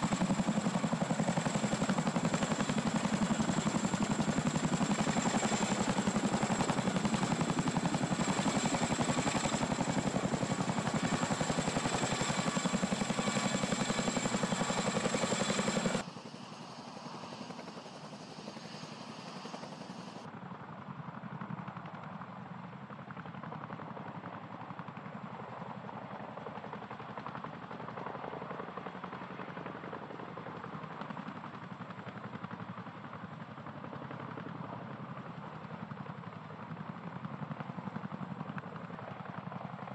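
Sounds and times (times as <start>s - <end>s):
helicopter rotor blades beating: 0.0s - 20.3s.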